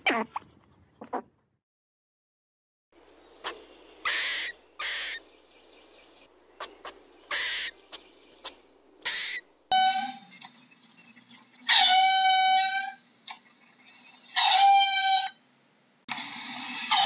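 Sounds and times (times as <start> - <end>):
high-pitched animal calls: 3.4 - 5.2, 6.6 - 7.8, 11.6 - 13.4, 14.1 - 15.4.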